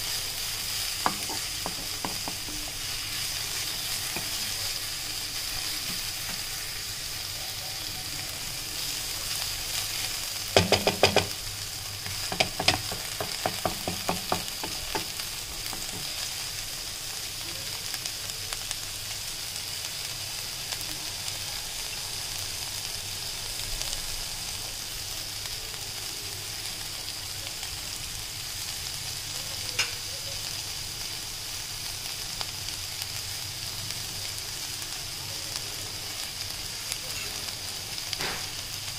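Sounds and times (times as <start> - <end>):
vegetables sizzling in a pan: 0.0 - 38.9
wooden spatula clattering on pan: 1.0 - 2.6, 10.6 - 11.4, 12.2 - 16.1.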